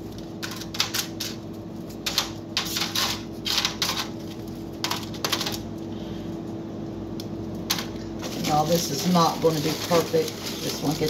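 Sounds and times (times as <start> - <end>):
cookies set in foil pan: 7.7 - 11.0.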